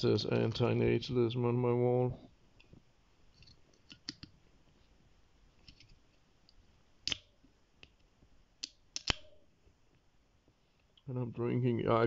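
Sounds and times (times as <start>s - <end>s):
sharp short clicks: 8.6s - 9.4s.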